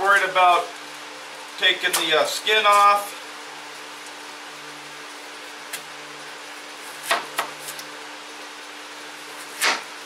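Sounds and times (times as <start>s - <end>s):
knife chopping on a cutting board: 7.0s - 7.8s, 9.4s - 9.9s.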